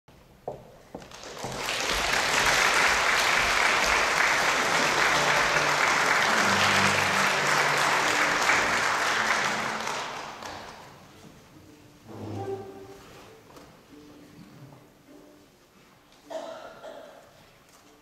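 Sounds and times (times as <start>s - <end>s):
audience applauding: 1.0s - 11.0s.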